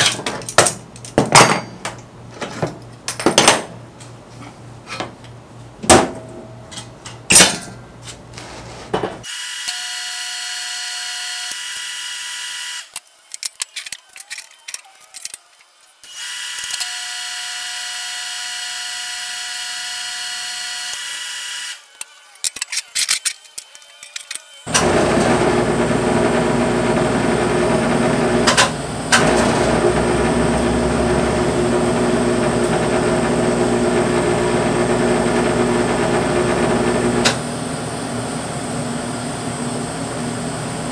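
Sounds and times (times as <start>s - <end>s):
welding arc buzzing: 24.6s - 40.9s.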